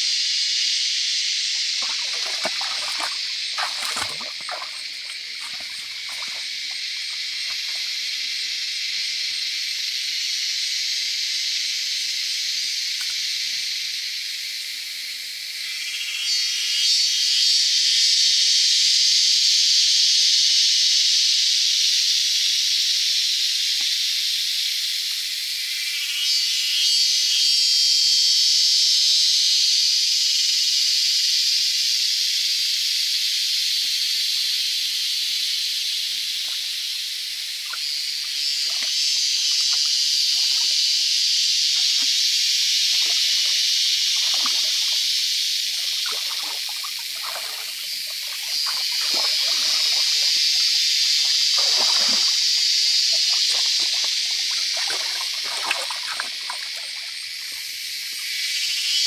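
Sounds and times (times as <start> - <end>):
high-pitched insect drone: 0.0 - 59.0
muddy water splashing: 1.6 - 8.0, 38.5 - 40.8, 42.8 - 50.6, 51.2 - 57.3.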